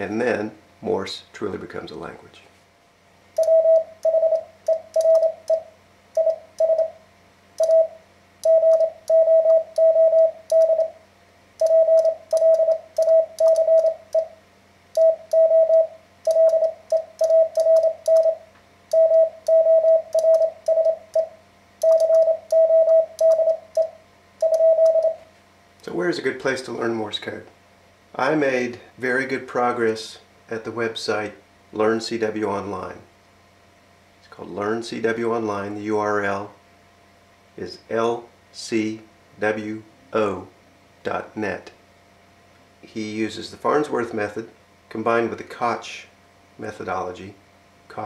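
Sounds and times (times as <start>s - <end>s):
morse code sidetone: 3.4s - 7.0s, 7.6s - 10.9s, 11.6s - 14.3s, 15.0s - 25.2s.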